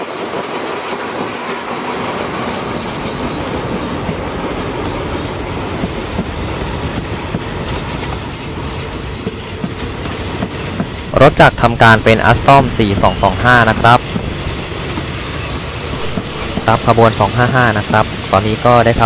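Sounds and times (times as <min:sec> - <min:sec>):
train wheels squealing: 0:02.3 - 0:12.2.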